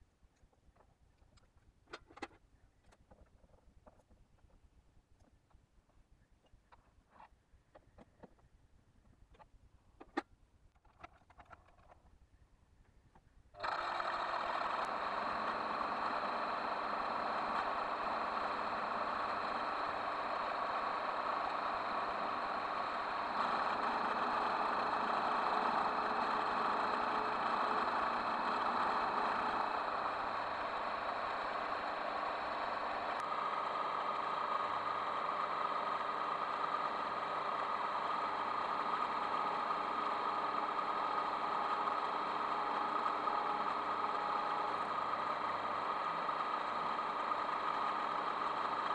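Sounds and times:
lathe motor whine: 13.6 - 48.9.

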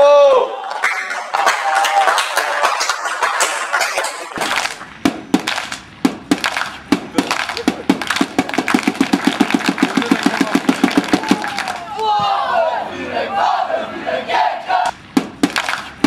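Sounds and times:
rhythmic drum beating: 2.7 - 11.9, 14.9 - 16.0
spectators' background voices: 6.9 - 14.9.

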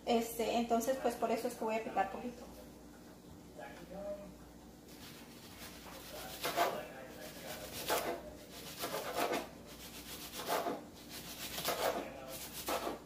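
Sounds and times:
cabbage shredded on cutting board: 4.9 - 13.0.

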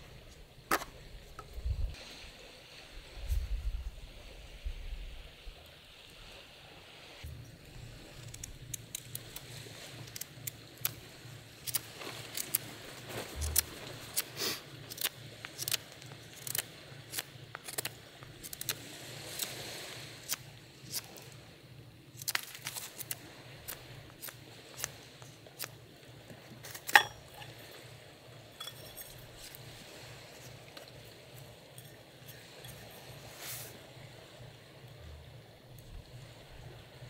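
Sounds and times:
knife carving wooden stick: 13.4 - 14.3.

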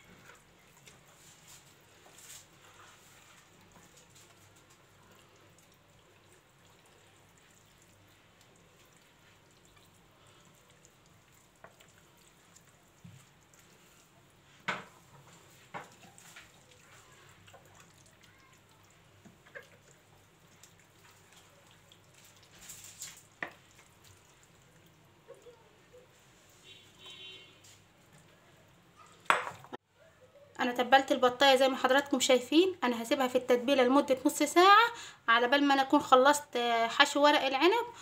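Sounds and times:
wet rubbing of hands: 19.6 - 26.6.

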